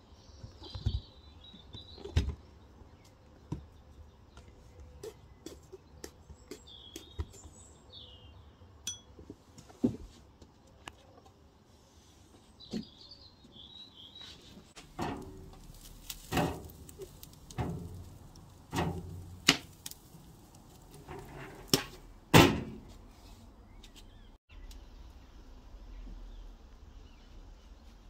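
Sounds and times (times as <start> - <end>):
eggplants knocking on metal grate: 14.8 - 20.0.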